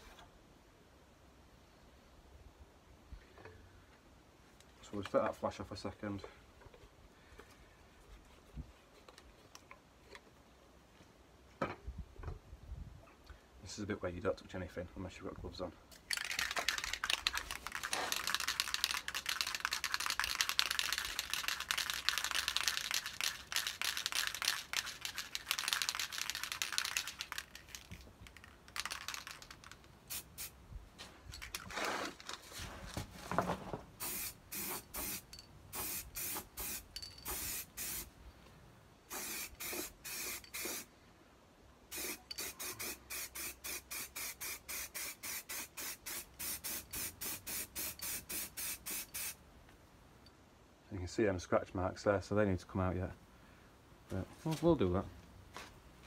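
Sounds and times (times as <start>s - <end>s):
aerosol spray hissing: 34.0s - 38.1s, 39.1s - 40.9s, 41.9s - 49.4s.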